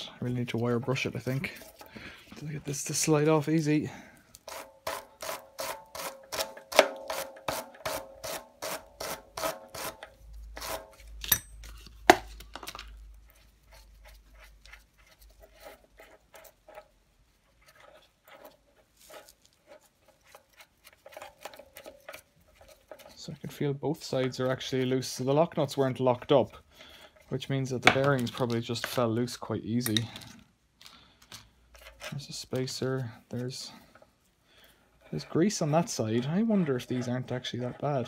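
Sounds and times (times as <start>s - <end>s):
wire brush scrubbing metal threads: 0.1s - 11.2s, 13.2s - 27.6s, 35.0s - 38.0s.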